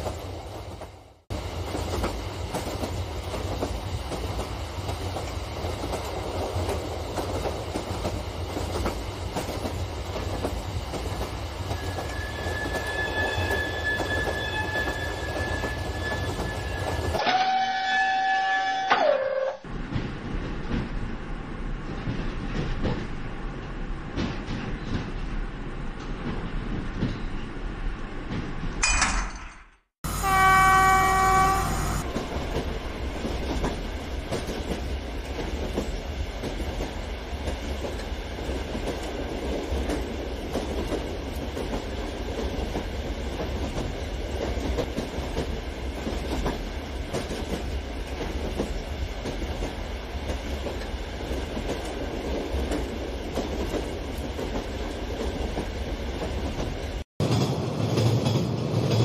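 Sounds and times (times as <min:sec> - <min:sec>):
model train rumble and clatter: 0:00.0 - 0:13.0, 0:19.6 - 0:28.8, 0:31.4 - 0:59.0
train horn: 0:12.1 - 0:19.6, 0:30.1 - 0:32.3.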